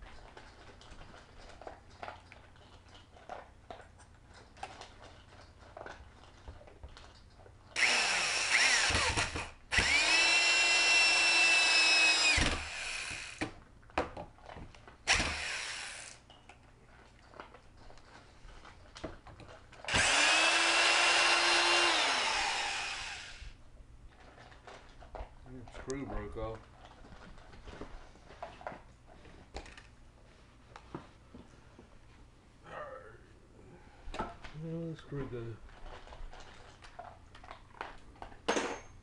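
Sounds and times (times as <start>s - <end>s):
electric drill boring into wood: 7.8s - 13.5s, 15.1s - 16.2s, 19.9s - 23.6s.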